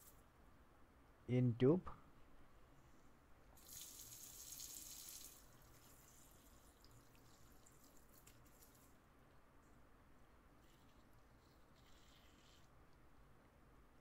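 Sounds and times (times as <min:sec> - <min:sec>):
faint drips and ticks: 0:03.6 - 0:09.0.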